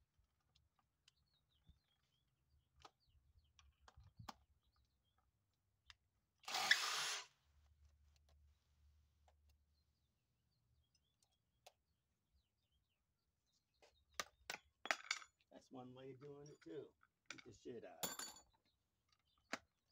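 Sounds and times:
impact driver running: 6.4 - 7.3.

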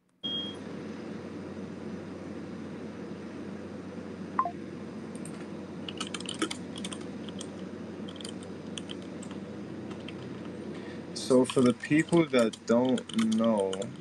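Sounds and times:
keyboard typing clicks: 5.9 - 7.5, 8.1 - 10.5, 11.4 - 14.0.

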